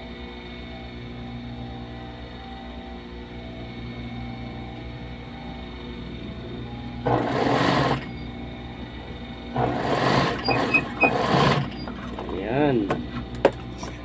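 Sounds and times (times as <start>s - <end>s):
sewing machine hum: 7.0s - 12.4s
sewing machine stitching: 7.1s - 8.1s, 9.6s - 11.9s.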